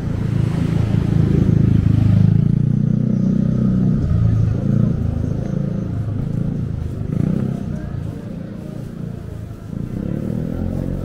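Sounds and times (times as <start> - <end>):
low traffic hum: 0.0 - 11.0
vehicle engine passing by: 0.0 - 11.0.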